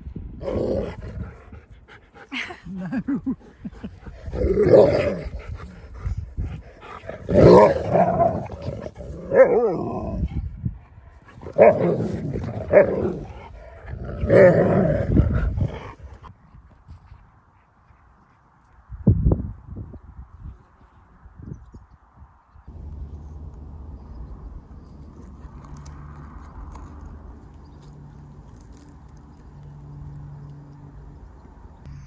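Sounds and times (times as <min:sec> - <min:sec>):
dogs growling while play-fighting: 0:00.4 - 0:02.0, 0:03.6 - 0:10.4, 0:11.3 - 0:16.3.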